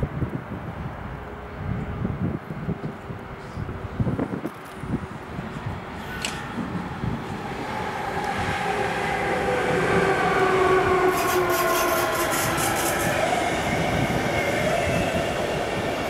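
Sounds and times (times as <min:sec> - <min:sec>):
electric locomotive whine: 0:00.7 - 0:16.0
train coaches rushing: 0:05.5 - 0:16.0.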